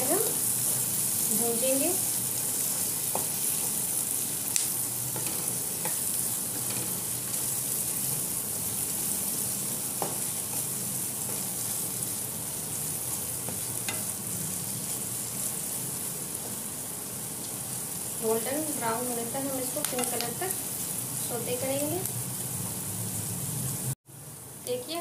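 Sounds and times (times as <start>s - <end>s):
onions sizzling in butter: 0.0s - 25.0s
spatula tapping pan: 2.8s - 3.8s, 4.5s - 7.4s, 9.9s - 11.6s, 13.4s - 14.2s, 19.8s - 20.4s
wooden spatula stirring: 5.1s - 12.1s.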